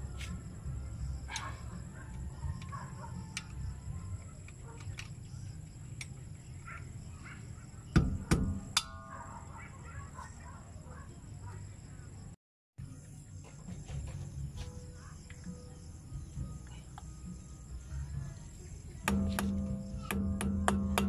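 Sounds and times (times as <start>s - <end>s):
metallic ring: 8.6s - 9.4s.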